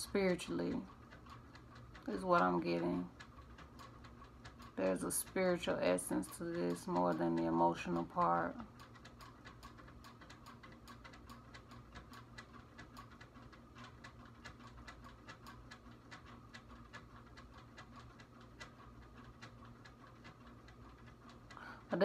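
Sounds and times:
fast ticking clicks: 0:00.0 - 0:22.0
low steady hum: 0:00.0 - 0:22.0.

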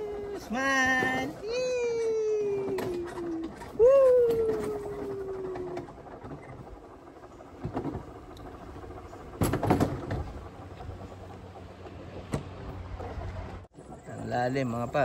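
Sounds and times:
coaster wheels rumbling on track: 0:00.0 - 0:15.0
sharp clatters and knocks: 0:07.5 - 0:10.9.

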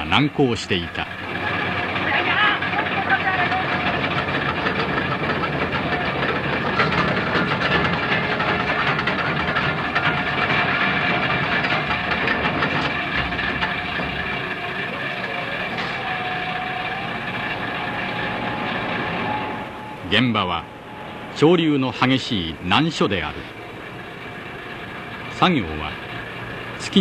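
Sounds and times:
heavy machinery din: 0:00.0 - 0:27.0
steady machinery whine: 0:00.0 - 0:27.0
machinery hiss: 0:16.8 - 0:27.0.

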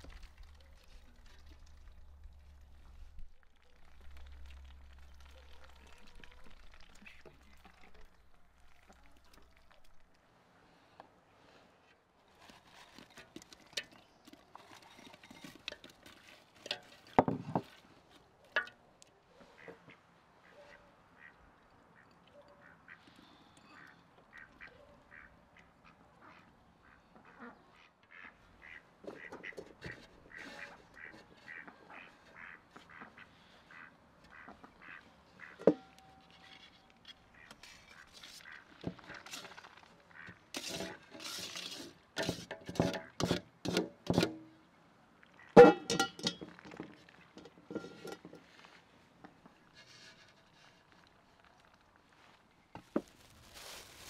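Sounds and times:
food clicking and scraping in pot: 0:12.4 - 0:17.8, 0:37.1 - 0:44.4
ducks quacking: 0:19.4 - 0:36.5, 0:37.2 - 0:41.0.

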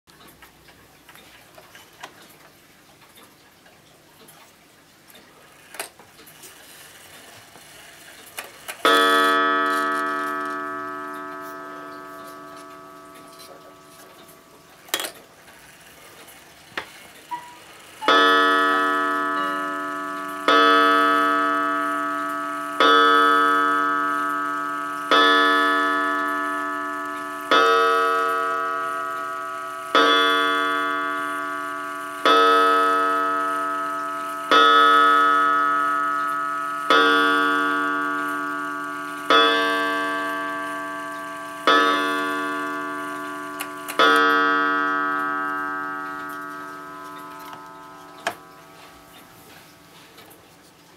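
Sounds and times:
clock movement clicks: 0:00.1 - 0:50.6
clock gong striking: 0:08.4 - 0:15.8, 0:17.3 - 0:49.9.

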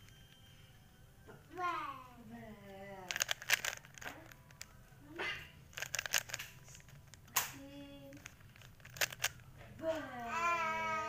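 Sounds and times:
plastic puzzle cube clicking: 0:03.0 - 0:04.7, 0:05.7 - 0:09.4.

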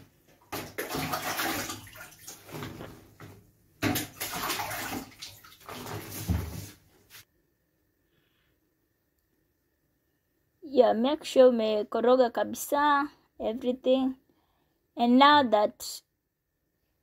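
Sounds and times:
water sloshing in plastic basin: 0:00.2 - 0:06.8.

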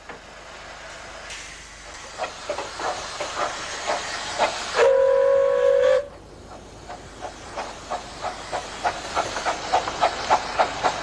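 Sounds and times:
steam hissing: 0:00.0 - 0:11.0
steam locomotive exhaust beats: 0:00.0 - 0:11.0
steam whistle blast: 0:04.8 - 0:06.2.

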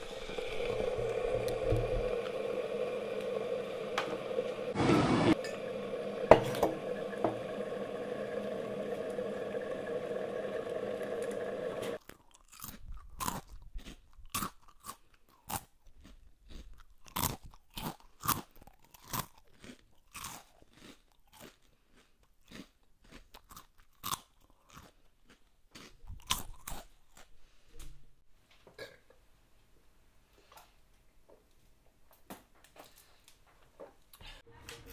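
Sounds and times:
mechanical drone: 0:00.0 - 0:12.0
chewing crisp food: 0:12.0 - 0:27.4.

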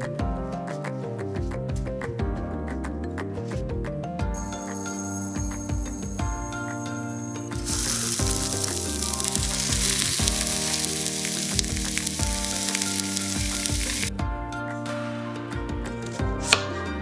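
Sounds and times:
background music: 0:00.0 - 0:17.0
meat sizzling in oil: 0:07.5 - 0:14.1.

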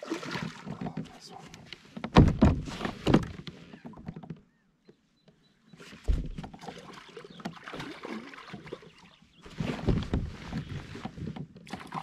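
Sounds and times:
water noise: 0:00.0 - 0:02.9, 0:05.7 - 0:12.0
knock on plastic kayak hull: 0:02.1 - 0:03.4.

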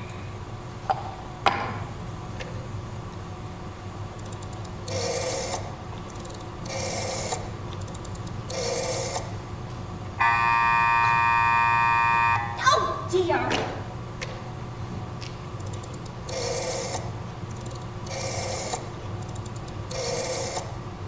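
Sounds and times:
rotary dial whirring: 0:04.1 - 0:09.4, 0:15.5 - 0:21.0
buzzing line tone: 0:10.2 - 0:12.6.

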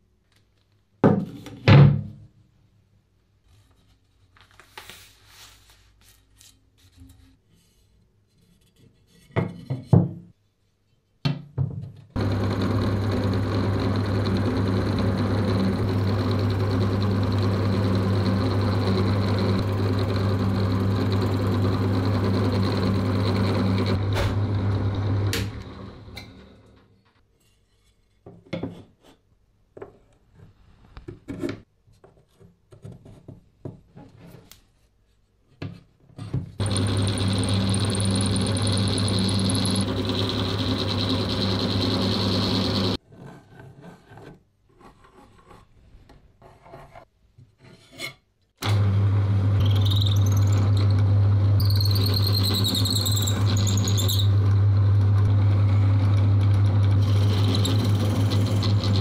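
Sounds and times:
motor spinning down: 0:12.2 - 0:26.4, 0:36.6 - 0:43.0, 0:48.6 - 0:59.0
electric motor humming: 0:12.2 - 0:26.5, 0:36.6 - 0:43.0, 0:48.6 - 0:59.0.

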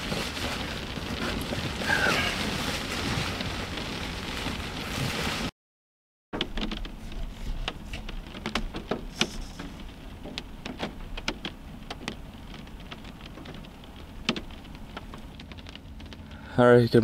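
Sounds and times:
raindrops tapping on a car: 0:00.0 - 0:05.5, 0:06.4 - 0:17.0.

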